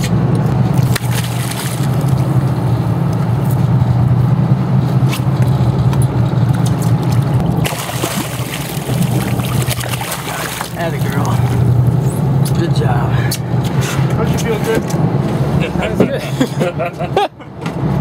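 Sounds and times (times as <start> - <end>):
boat engine humming: 0.0 - 18.0
fish splashing: 0.8 - 2.4, 7.0 - 11.7
water sloshing against hull: 6.8 - 11.9.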